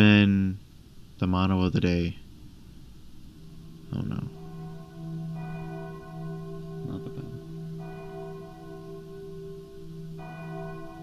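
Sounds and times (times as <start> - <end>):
steady low hum: 0.0 - 11.0
bell tolling: 3.4 - 11.0.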